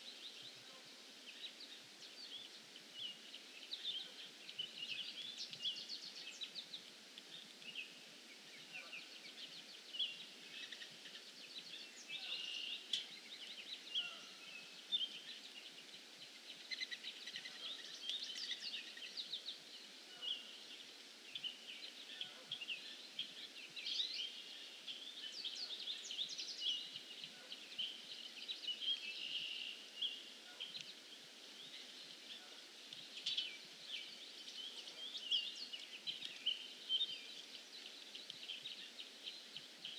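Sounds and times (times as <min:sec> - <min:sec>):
faint background hiss: 0:00.0 - 0:39.9
songbirds chirping and trilling: 0:00.0 - 0:39.9.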